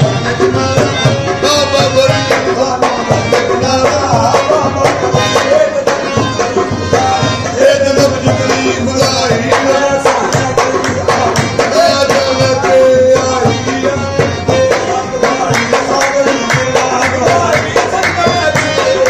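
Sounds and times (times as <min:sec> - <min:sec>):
steady drumming: 0:00.0 - 0:19.0.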